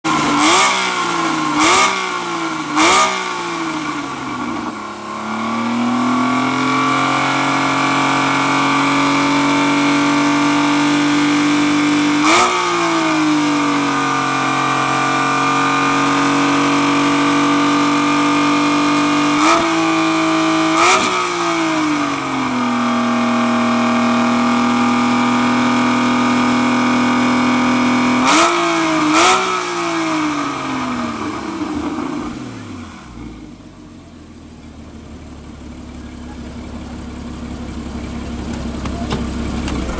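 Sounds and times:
car engine revving: 0.0s - 39.9s
exhaust crack: 35.6s - 39.9s.

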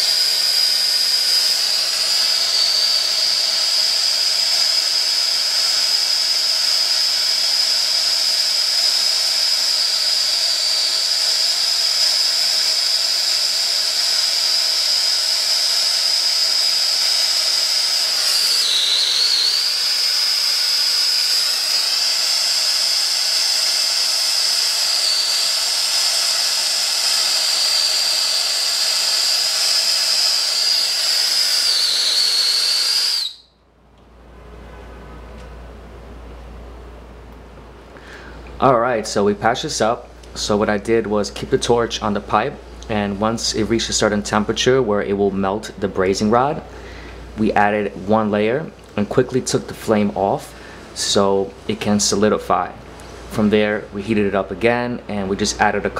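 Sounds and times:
torch flame hissing and whistling: 0.0s - 33.5s.

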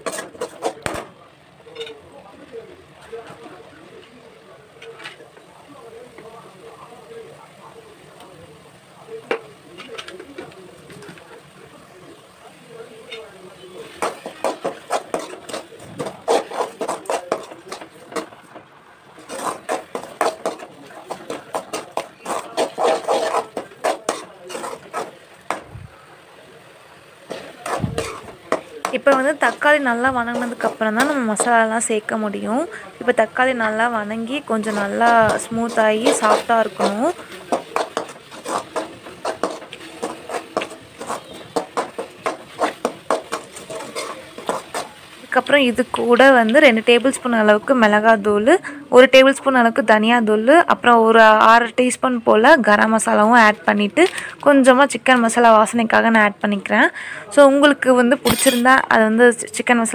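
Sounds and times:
metal spoon scraping a pan: 0.0s - 1.1s, 13.0s - 25.6s, 27.2s - 31.7s, 33.6s - 46.3s, 58.2s - 58.9s
masala frying: 0.0s - 59.9s.

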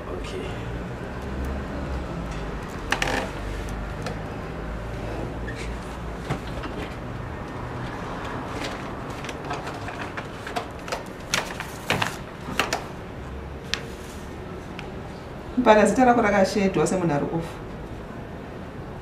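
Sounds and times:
clicks and rustles at a desk: 2.2s - 4.3s, 5.5s - 13.0s.

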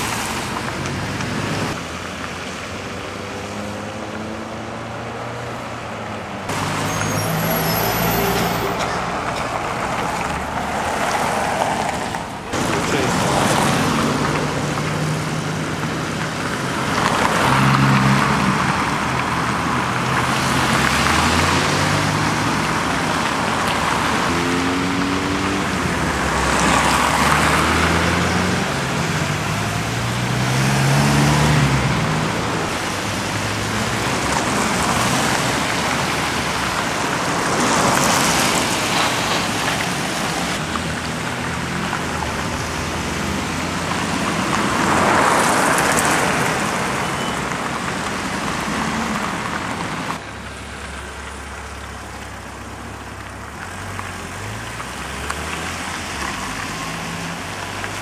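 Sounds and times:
tyres hissing on wet road: 0.0s - 5.2s, 6.0s - 58.0s
car engine accelerating: 16.8s - 36.6s.

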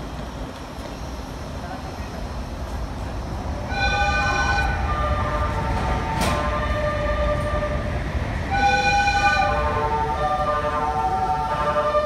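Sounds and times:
low rumble of train: 0.0s - 12.0s
train musical horn: 3.7s - 12.0s.

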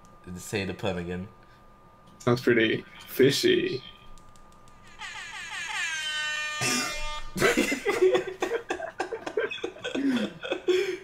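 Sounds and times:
people laughing: 6.6s - 11.0s.

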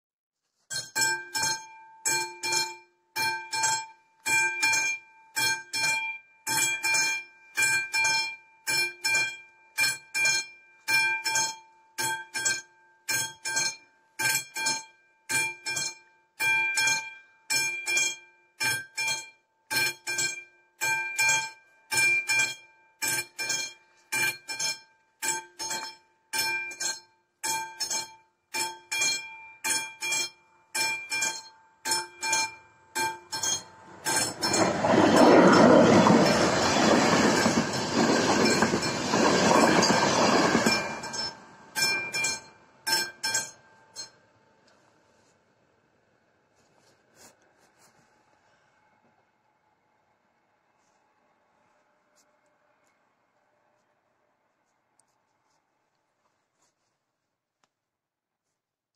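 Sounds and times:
level crossing warning bell: 0.7s - 44.6s.

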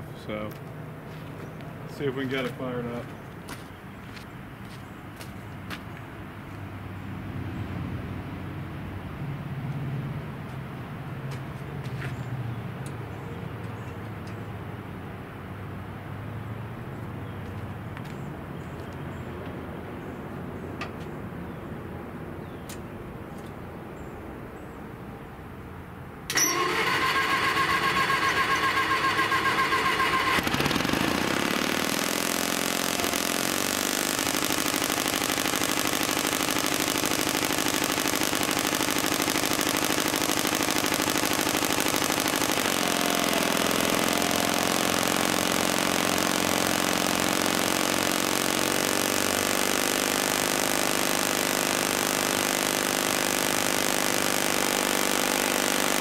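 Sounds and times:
engine starter cranking: 26.3s - 33.6s
engine running: 26.3s - 56.0s.

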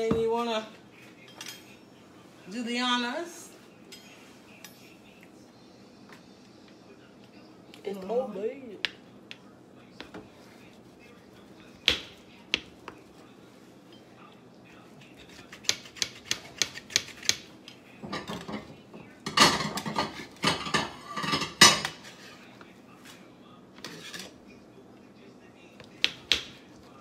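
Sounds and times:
metal pan and utensils clattering: 18.0s - 22.2s.

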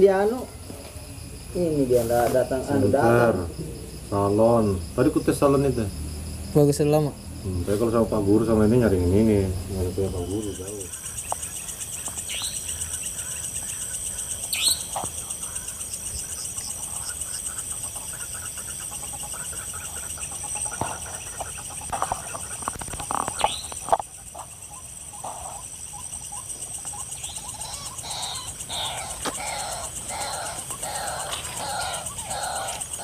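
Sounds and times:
night insects chirring: 0.0s - 33.0s
waterhen clucking calls: 8.0s - 33.0s.

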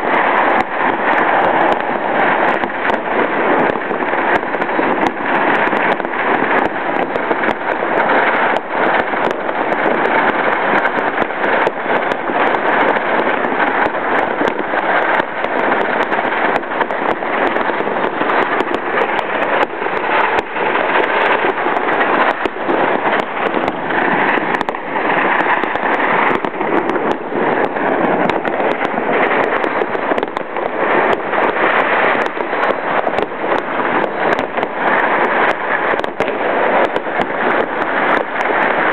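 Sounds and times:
fireworks crackling: 0.0s - 38.9s
sharp firecracker bangs: 0.0s - 38.9s.

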